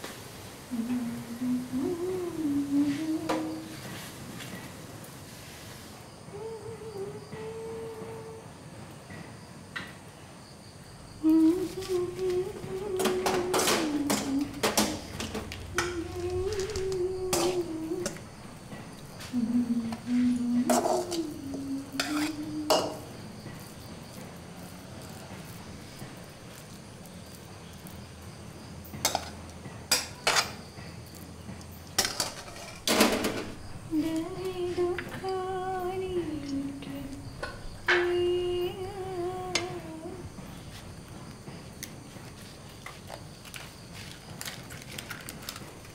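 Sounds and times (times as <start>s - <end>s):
woman humming a slow tune: 0.7s - 4.0s, 6.1s - 8.7s, 11.2s - 23.7s, 33.6s - 41.7s
kitchen utensils and pots clattering: 20.7s - 21.2s, 22.0s - 23.1s, 29.0s - 30.6s, 32.0s - 33.6s
spoon scraping metal pan: 20.7s - 21.2s, 22.0s - 23.0s.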